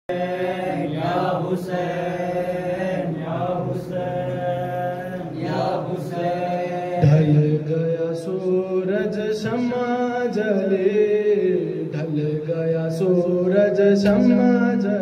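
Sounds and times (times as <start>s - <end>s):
man chanting into a microphone: 6.4s - 15.0s.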